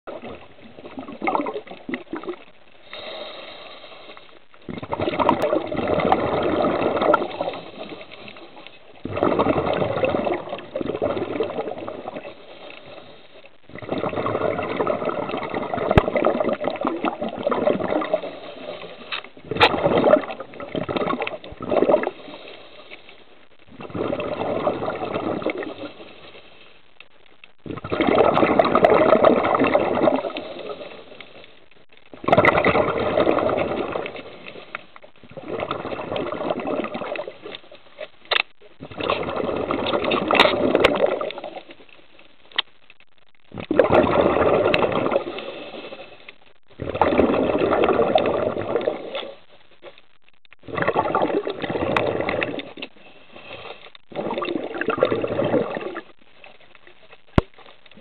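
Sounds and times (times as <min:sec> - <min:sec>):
underwater water surges: 0:00.0 - 0:58.0
faint sharp clicks: 0:37.4 - 0:38.7, 0:40.3 - 0:43.4.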